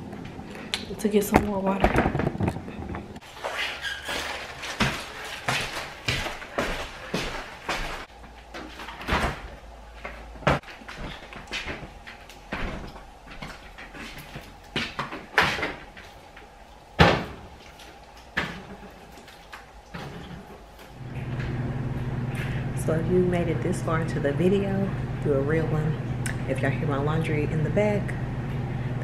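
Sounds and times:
plastic bottles knocking: 0:01.4 - 0:03.2.

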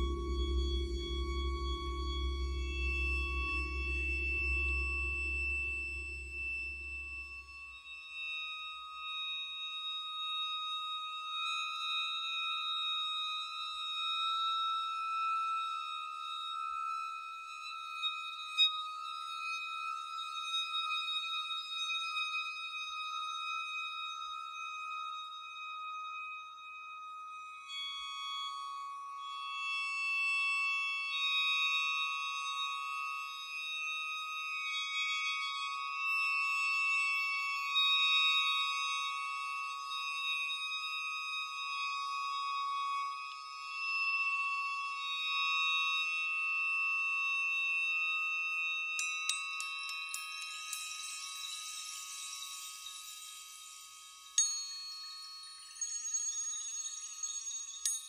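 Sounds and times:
low rumble: 0:00.0 - 0:06.3
sustained high ringing tones: 0:00.0 - 0:23.3, 0:24.2 - 0:58.0.

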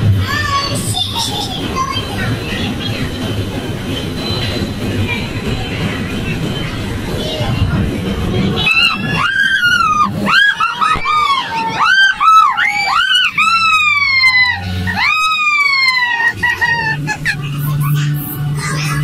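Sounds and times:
high-pitched voice crying: 0:09.7 - 0:17.9.

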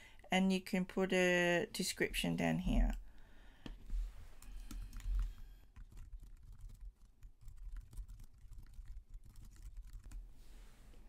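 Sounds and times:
typing on keyboard: 0:04.4 - 0:10.2.

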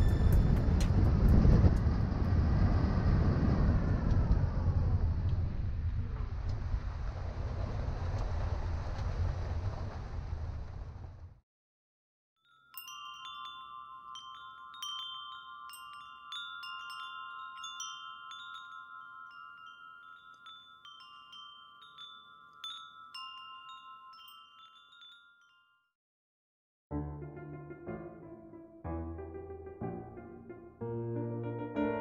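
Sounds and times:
metal wind chimes ringing: 0:12.4 - 0:25.9.

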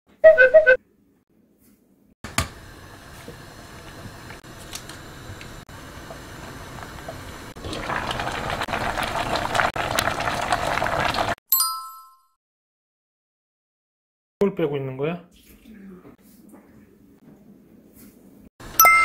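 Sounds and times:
pot boiling: 0:02.3 - 0:11.4
crackly bubbling braise: 0:02.5 - 0:11.4.

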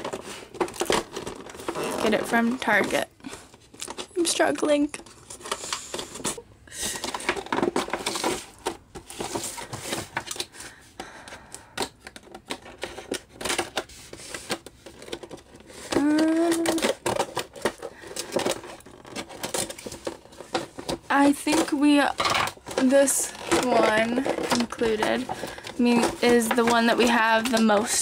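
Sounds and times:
scissors snipping plastic: 0:00.0 - 0:03.0, 0:11.4 - 0:28.0.

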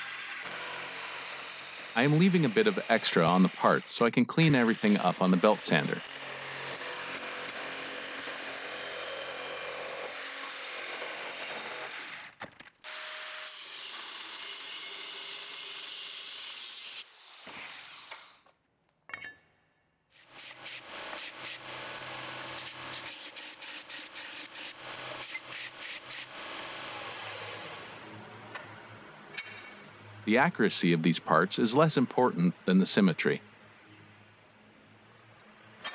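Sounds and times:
cutoff disc cutting steel: 0:00.0 - 0:12.0
reciprocating saw cutting metal: 0:00.0 - 0:18.4, 0:20.1 - 0:28.1.

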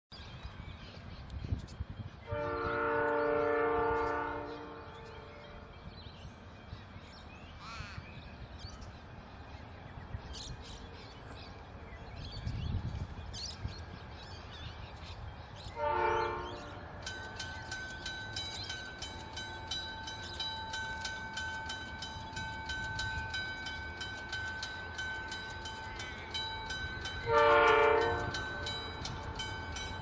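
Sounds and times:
locomotive air horn blasts: 0:02.3 - 0:05.5, 0:15.7 - 0:16.8, 0:27.2 - 0:28.6.

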